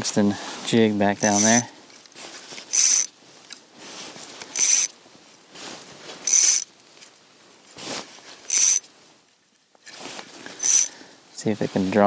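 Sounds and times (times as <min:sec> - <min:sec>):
fishing reel whirring ratchet: 0:01.2 - 0:01.6, 0:02.7 - 0:03.1, 0:04.6 - 0:04.9, 0:06.3 - 0:06.7, 0:08.5 - 0:08.8, 0:10.6 - 0:10.9.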